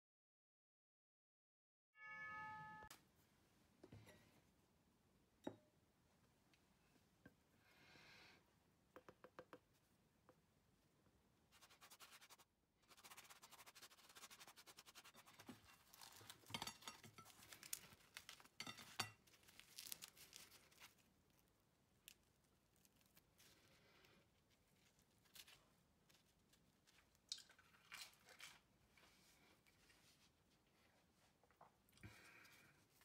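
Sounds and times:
pastry brush scratching bread: 11.6s - 21.0s
bread tearing: 15.2s - 16.6s, 17.2s - 23.8s.

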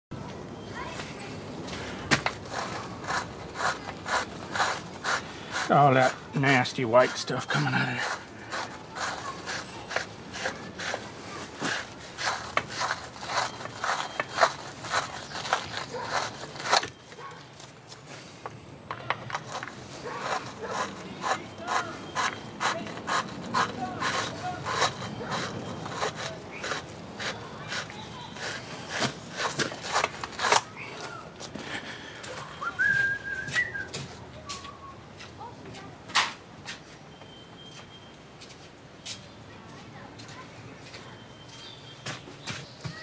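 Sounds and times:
metal scraping and rubbing: 1.8s - 17.3s, 19.3s - 31.1s.

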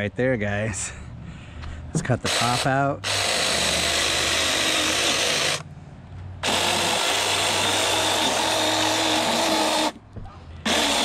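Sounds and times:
electric chainsaw cutting pumpkin: 2.2s - 5.6s, 6.4s - 10.0s, 10.6s - 11.0s.

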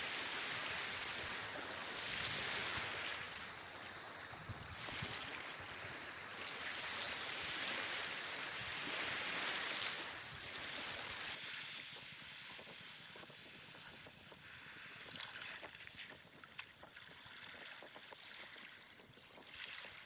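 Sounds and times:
small waves on pebbles: 0.0s - 11.4s.

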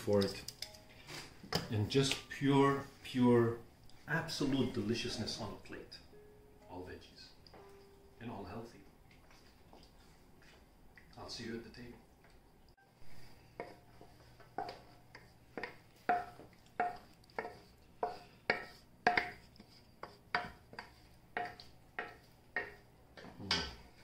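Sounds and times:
wooden spoon scraping metal pan: 13.1s - 22.8s.

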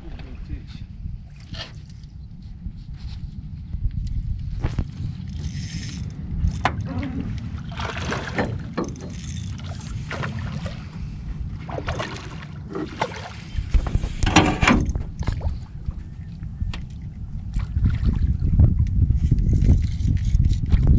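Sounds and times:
wind rumbling on microphone: 0.0s - 20.9s
water against boat hull: 5.7s - 20.9s.

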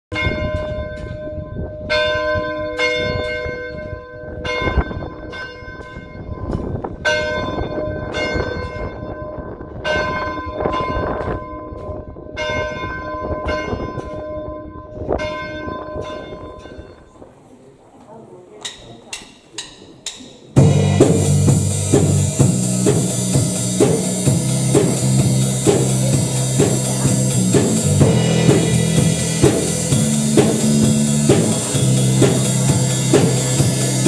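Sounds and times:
church bells ringing: 0.1s - 17.2s.

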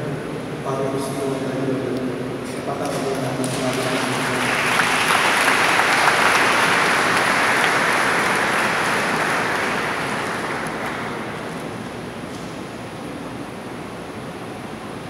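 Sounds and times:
congregation applauding: 2.8s - 12.2s.

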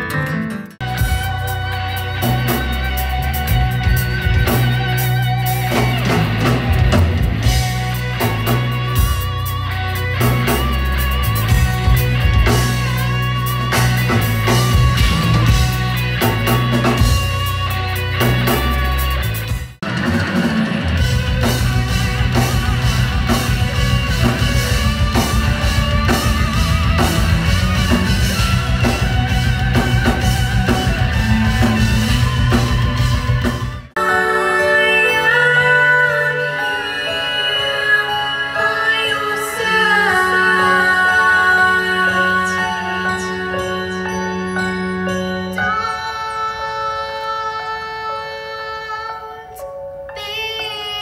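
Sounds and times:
live rock band playing: 0.0s - 49.5s
wavering held melody line: 20.9s - 49.4s.

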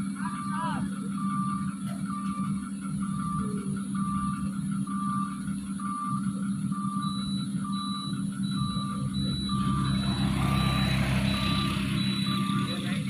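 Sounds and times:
truck diesel engine running: 0.0s - 13.0s
reversing alarm beeping: 0.3s - 13.0s
motorcycle passing: 8.7s - 13.0s.

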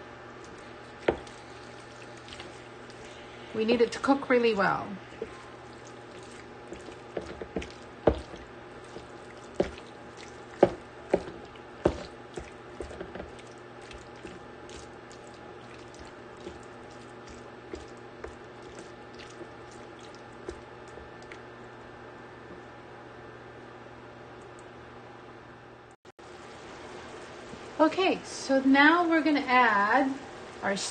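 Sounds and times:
spatula knocking and scraping pan: 6.2s - 9.9s, 10.6s - 13.4s.

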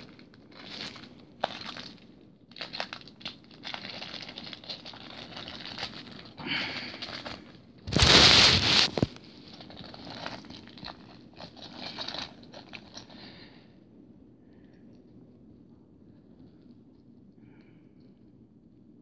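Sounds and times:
plastic packaging crinkling: 0.0s - 13.5s.

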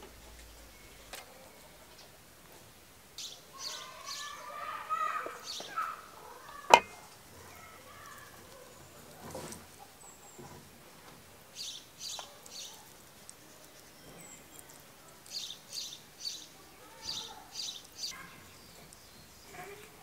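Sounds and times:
small bird chirping: 11.6s - 19.9s.

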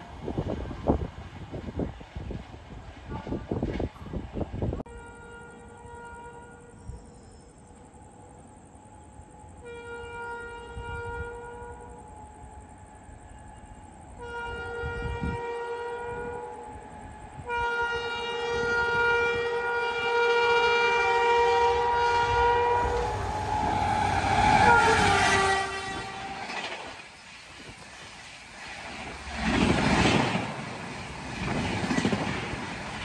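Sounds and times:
locomotive horn blasts: 4.9s - 7.2s, 9.5s - 12.2s, 14.2s - 26.6s
train coaches rushing past: 18.0s - 33.0s.

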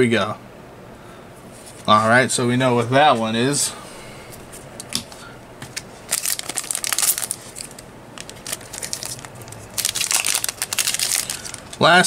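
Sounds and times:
foil wrapper crinkling: 5.8s - 12.0s.

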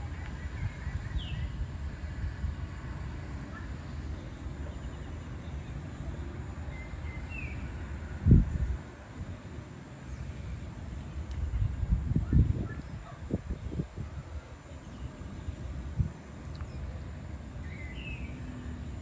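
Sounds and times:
wind buffeting microphone: 0.0s - 3.4s, 7.0s - 9.4s, 11.1s - 19.0s.

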